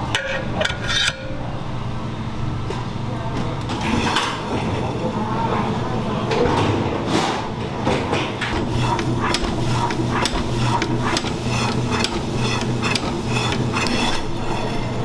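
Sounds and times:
meat slicer motor hum: 8.5s - 15.0s.

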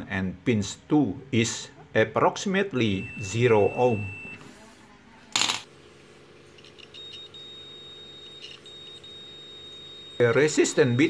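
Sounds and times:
faint high tone and hum: 2.7s - 11.0s.

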